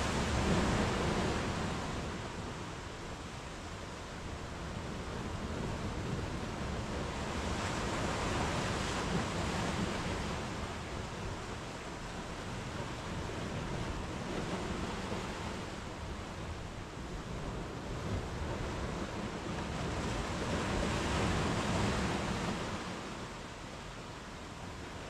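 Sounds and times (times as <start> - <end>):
waves breaking on sandy beach: 0.0 - 25.0.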